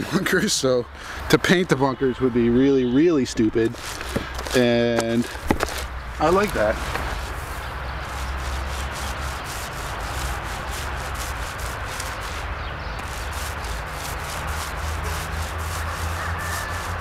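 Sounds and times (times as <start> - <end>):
paint roller rubbing on concrete: 3.6 - 17.0.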